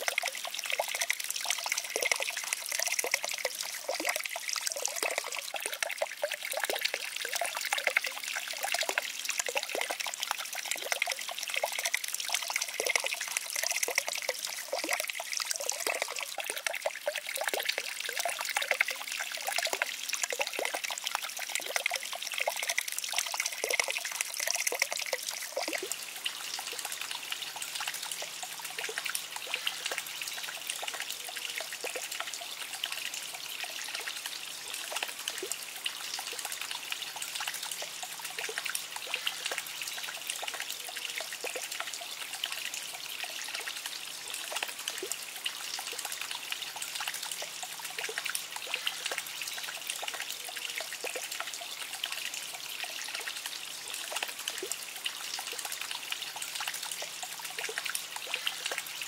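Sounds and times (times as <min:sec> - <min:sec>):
water trickling over stones: 0:00.0 - 0:59.0.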